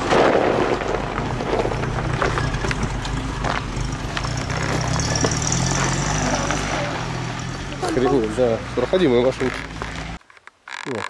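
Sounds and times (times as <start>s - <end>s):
off-road vehicle engine at low revs: 0.0s - 10.2s
gravel crunching: 0.0s - 11.0s
stones knocking and clicking: 0.1s - 6.0s.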